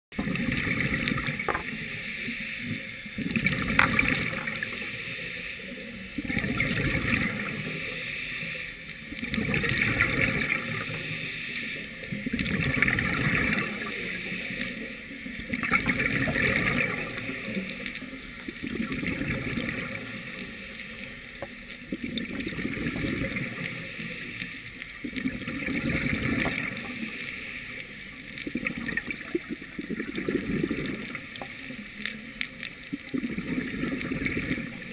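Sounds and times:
exhaled bubbles gurgling: 0.1 - 34.9
regulator inhale hiss: 1.7 - 3.2, 4.4 - 6.1, 7.4 - 9.1, 10.7 - 12.2, 13.6 - 15.4, 23.4 - 24.9, 26.6 - 27.9.

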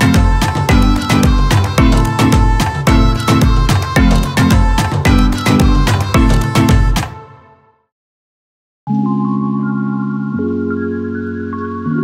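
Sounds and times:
music with strong bass beat: 0.0 - 7.2.

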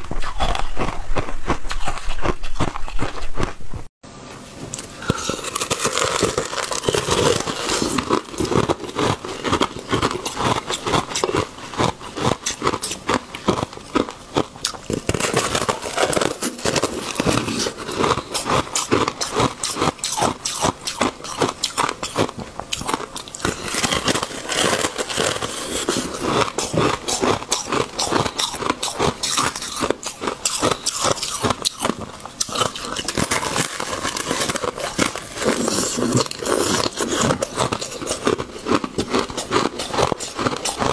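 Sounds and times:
ice crunching between teeth: 0.0 - 3.6, 4.7 - 40.9.

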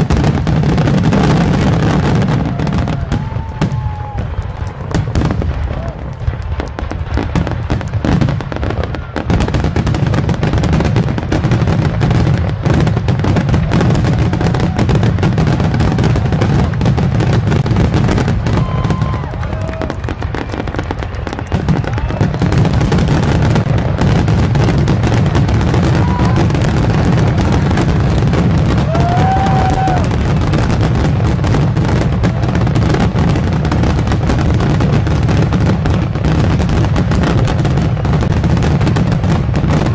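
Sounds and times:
firework bangs and crackles: 0.0 - 39.9.

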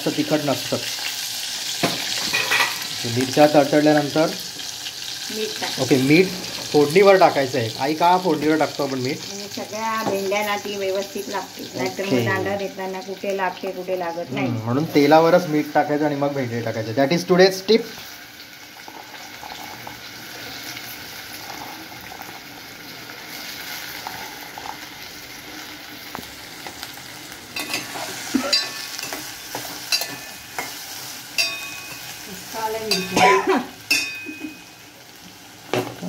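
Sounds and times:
okra sizzling in hot oil: 0.0 - 36.0
spoon clinking and scraping pot: 1.8 - 2.9, 27.6 - 32.2, 32.9 - 34.8.

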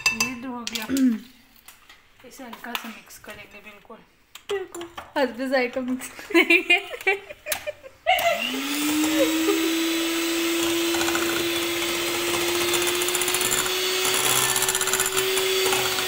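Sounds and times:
electric hand mixer whine: 8.2 - 16.0.

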